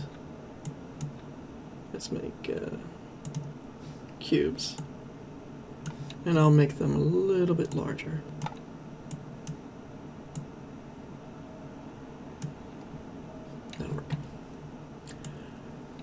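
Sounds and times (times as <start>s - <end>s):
faint low hum: 0.0s - 16.0s
computer mouse clicks: 3.2s - 3.5s.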